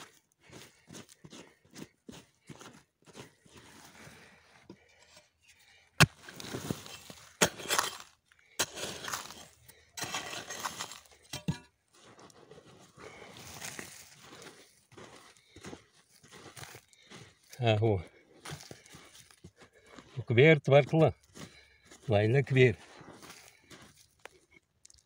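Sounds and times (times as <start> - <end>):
hands digging through stony soil: 5.7 - 20.3, 21.2 - 25.0.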